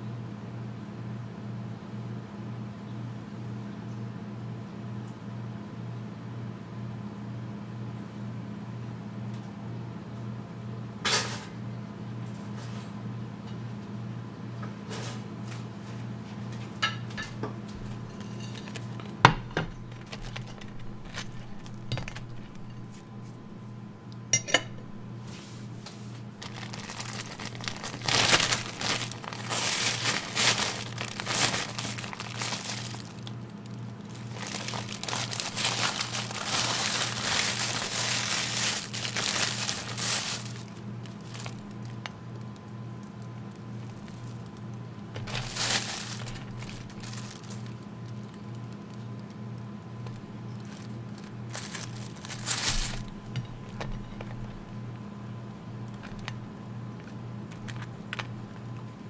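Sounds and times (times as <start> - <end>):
steady low hum: 17.2 - 59.0
plastic bag crinkling: 18.0 - 19.2, 19.8 - 23.8, 26.3 - 49.4, 50.0 - 54.7, 55.9 - 58.8
plate clinking on cooktop: 24.4 - 24.8
knocks and clinks: 24.4 - 24.9.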